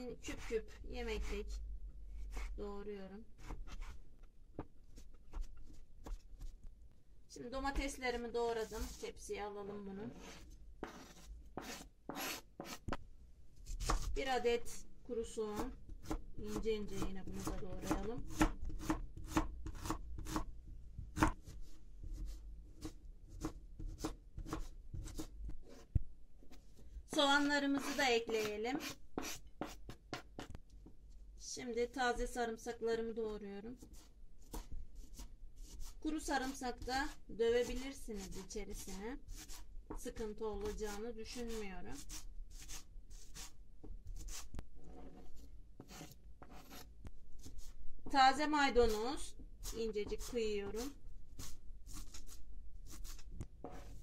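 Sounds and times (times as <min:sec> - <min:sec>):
knife chopping on plastic board: 0:15.6 - 0:26.0.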